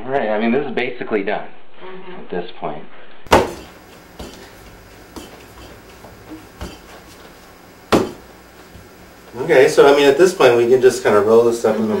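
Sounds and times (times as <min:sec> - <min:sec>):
sharp knock on board: 0:03.3 - 0:04.4, 0:07.9 - 0:08.3
dough kneaded on wooden board: 0:03.3 - 0:09.4.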